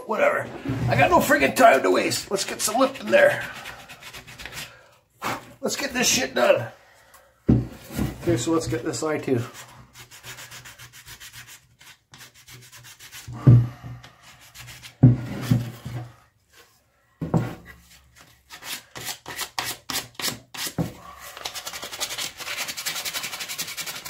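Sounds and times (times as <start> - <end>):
sandpaper rubbing on wood: 2.5 - 4.7, 9.5 - 13.3, 21.6 - 24.0.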